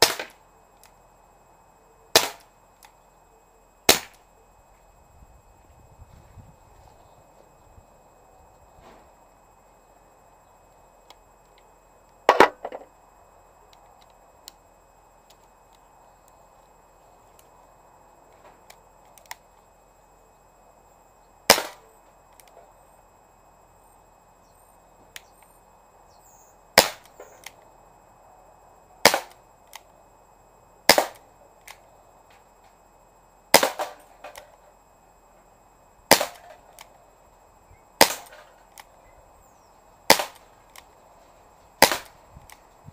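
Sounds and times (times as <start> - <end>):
air revolver shots: 0.0 - 0.4, 2.2 - 2.5, 3.9 - 4.2, 21.5 - 21.8, 26.8 - 27.2, 29.0 - 29.4, 30.9 - 31.2, 33.5 - 34.4, 36.1 - 36.6, 38.0 - 38.5, 40.1 - 40.4, 41.8 - 42.2.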